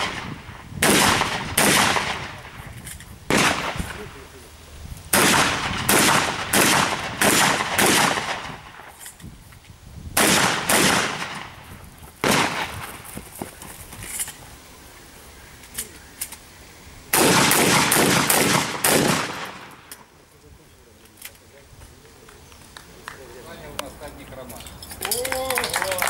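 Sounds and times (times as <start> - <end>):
pistol shots: 0.0 - 2.5, 3.3 - 4.1, 5.1 - 8.9, 10.2 - 11.6, 12.2 - 13.0, 17.1 - 19.9.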